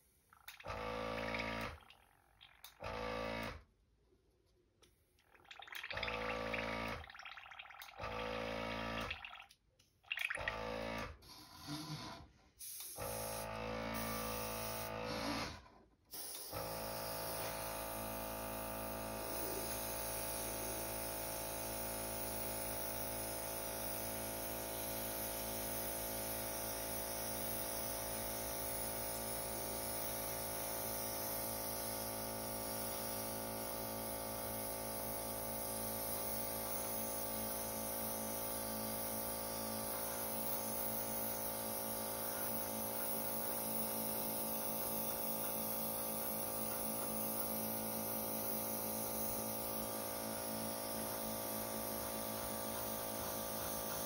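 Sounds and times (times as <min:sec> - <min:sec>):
air compressor humming: 0:10.6 - 0:54.0
airbrush spraying hiss: 0:12.6 - 0:13.4, 0:14.0 - 0:14.9, 0:16.1 - 0:16.6, 0:19.2 - 0:20.9.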